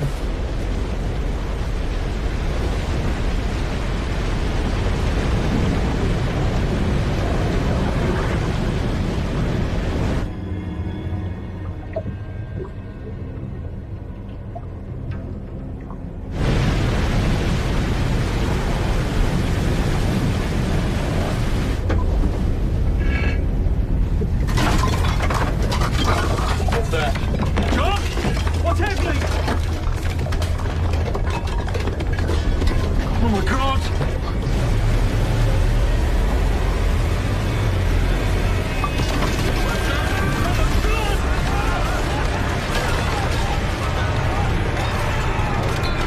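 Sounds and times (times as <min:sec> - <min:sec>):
deep rumble of wave: 0:00.0 - 0:46.0
dishes rattling in rack: 0:24.5 - 0:33.2.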